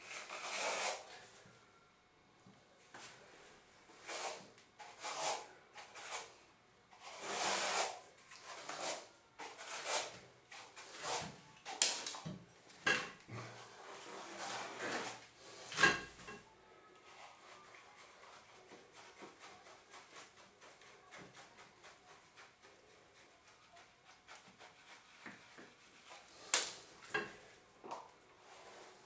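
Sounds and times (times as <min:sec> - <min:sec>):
comb scraping wet wall texture: 0:00.0 - 0:01.2, 0:04.0 - 0:12.3, 0:13.3 - 0:16.3, 0:17.1 - 0:26.9.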